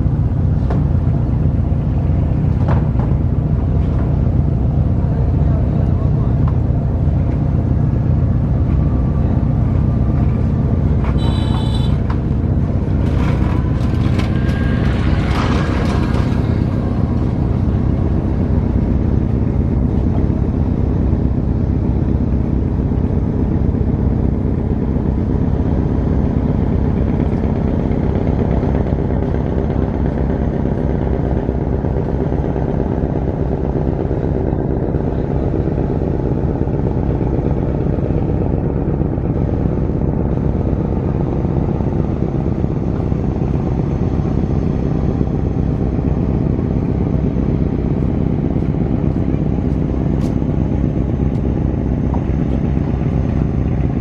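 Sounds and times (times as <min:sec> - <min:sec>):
boat engine rumbling: 0:00.0 - 0:54.0.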